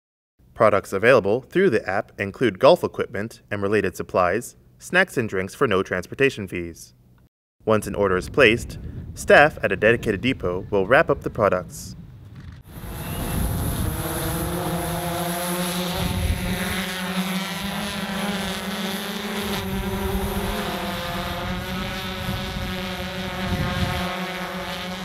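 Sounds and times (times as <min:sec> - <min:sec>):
wind rumbling on microphone: 0:07.9 - 0:14.8, 0:15.8 - 0:16.9, 0:19.5 - 0:25.0
drone propellers humming: 0:12.5 - 0:25.0.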